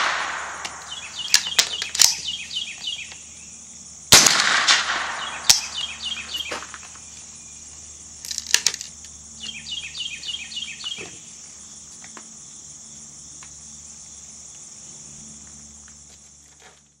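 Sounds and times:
insects droning: 0.0s - 17.0s
bird chirping: 0.4s - 3.6s, 5.1s - 7.9s, 9.4s - 11.3s
rifle action metallic clicks: 0.6s - 2.2s.

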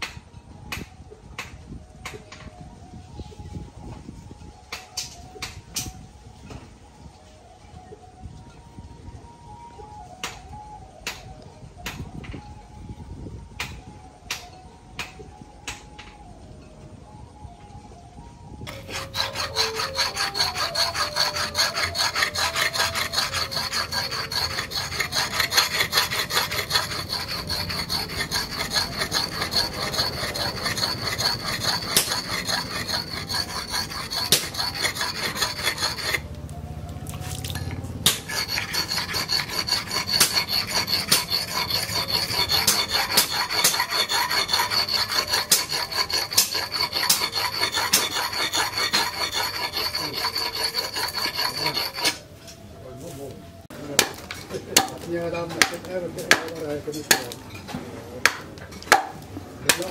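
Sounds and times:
axe blade scraping on whetstone: 18.7s - 36.3s, 37.2s - 52.6s, 54.0s - 59.9s.

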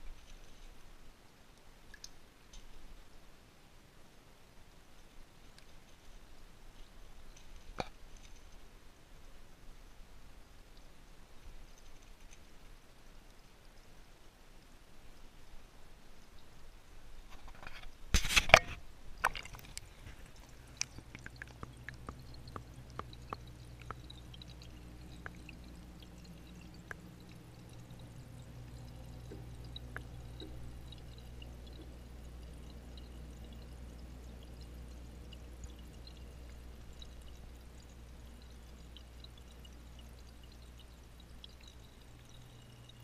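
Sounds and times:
steady low hum: 18.5s - 43.0s.

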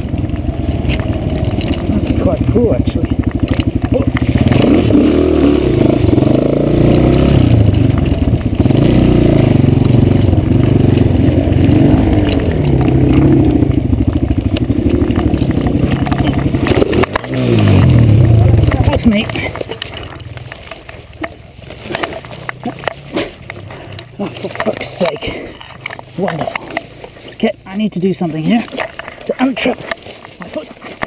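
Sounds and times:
motorbike engine revving: 0.0s - 31.0s
motorbike crash: 6.9s - 27.4s.

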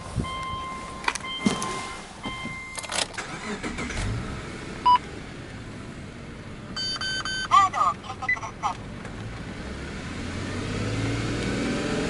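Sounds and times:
car engine idling: 0.0s - 9.6s
short loud beep: 6.8s - 7.6s.

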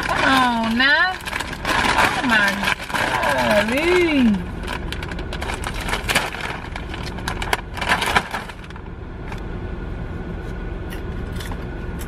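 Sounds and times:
plastic snack bag crinkling: 0.0s - 8.8s.

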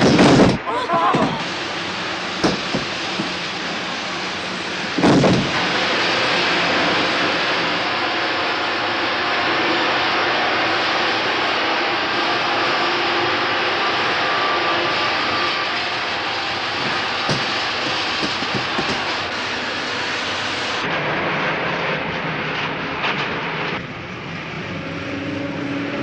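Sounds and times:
heavy bang: 0.0s - 6.0s, 16.6s - 19.4s
train rushing through tunnel: 0.0s - 26.0s.

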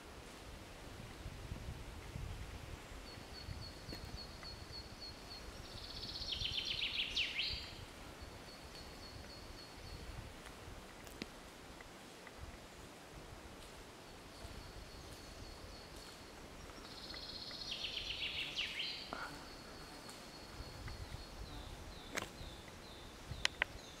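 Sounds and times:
songbird singing: 1.6s - 10.3s, 14.0s - 24.0s.

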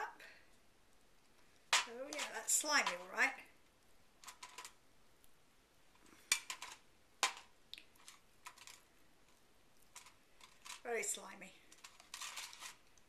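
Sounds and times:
plastic cups and sticks clicking: 6.0s - 8.8s.

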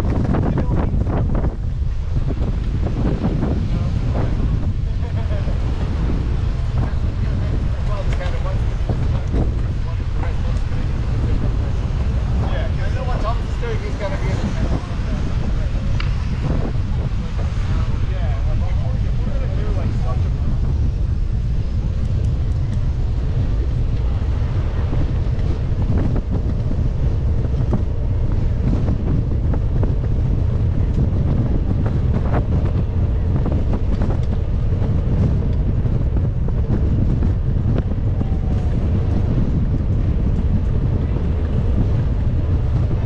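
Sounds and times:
wind buffeting microphone: 0.0s - 43.0s.

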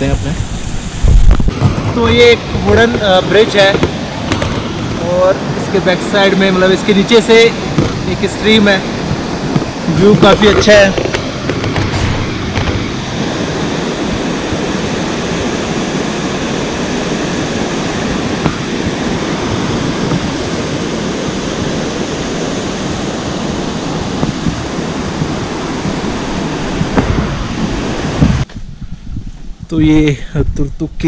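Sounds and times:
stream rushing over boulders: 0.4s - 28.4s.

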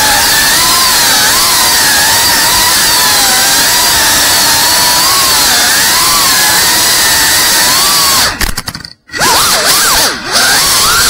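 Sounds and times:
drone motors and propellers whining: 9.1s - 11.0s.

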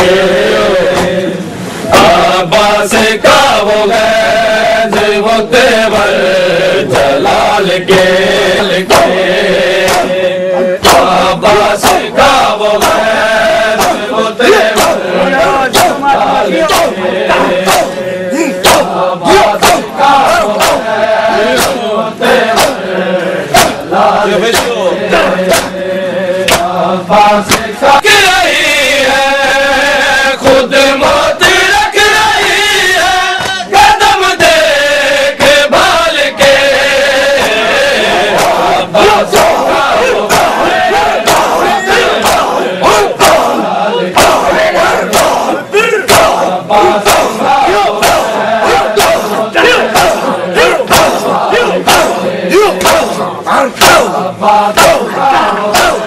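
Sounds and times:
crowd of men chanting: 0.0s - 56.0s
hands slapping on chests: 8.9s - 9.2s, 9.8s - 10.2s, 10.8s - 11.1s, 11.8s - 12.1s, 12.8s - 13.1s, 13.8s - 14.0s, 14.6s - 15.0s, 15.7s - 16.0s, 16.6s - 18.0s, 18.6s - 20.8s, 21.5s - 21.8s, 22.5s - 22.8s, 23.6s - 23.8s, 24.5s - 24.8s, 25.5s - 25.8s, 26.4s - 26.7s, 27.5s - 27.7s, 33.4s - 33.6s, 38.3s - 38.7s, 39.3s - 40.6s, 41.2s - 42.6s, 45.1s - 45.5s, 46.1s - 46.4s, 47.0s - 47.4s, 48.0s - 52.2s, 52.8s - 53.2s, 54.8s - 55.1s, 55.7s - 56.0s.

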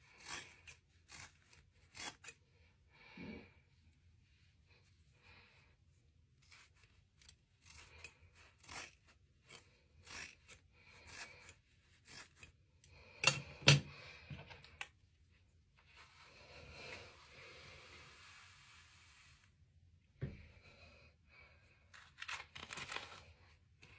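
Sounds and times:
brush sweeping through hair: 15.9s - 19.6s.

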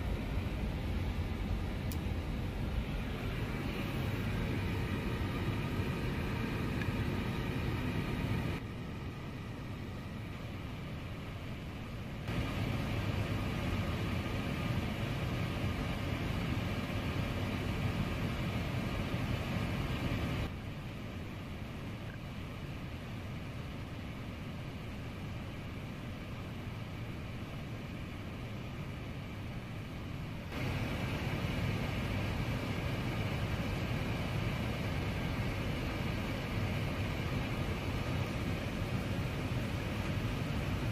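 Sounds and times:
airliner cockpit rush: 0.0s - 8.6s, 30.5s - 40.9s
cockpit equipment hum and air hiss: 0.0s - 40.9s.

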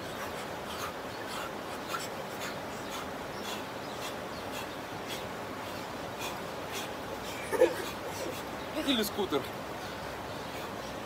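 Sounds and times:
steady rushing background noise: 0.0s - 11.0s.

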